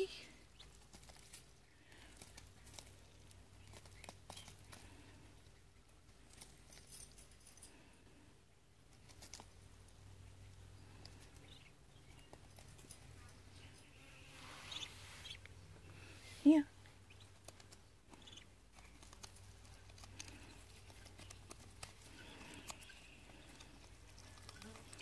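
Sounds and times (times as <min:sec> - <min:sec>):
duck bill pecking: 0:17.1 - 0:25.0.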